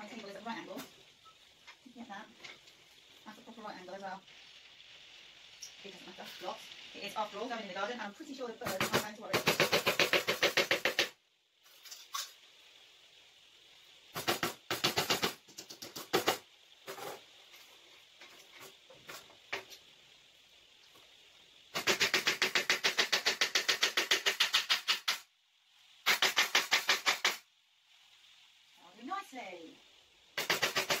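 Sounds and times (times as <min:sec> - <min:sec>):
hammer driving nails into wood: 0:21.8 - 0:25.2, 0:26.1 - 0:27.4, 0:30.4 - 0:31.0.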